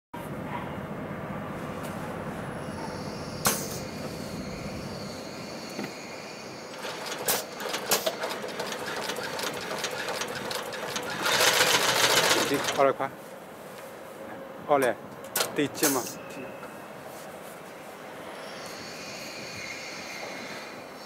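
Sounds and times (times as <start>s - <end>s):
sharp click: 3.4s - 3.8s
sewing machine motor humming: 6.8s - 12.8s
sewing machine needles stitching: 6.8s - 12.8s.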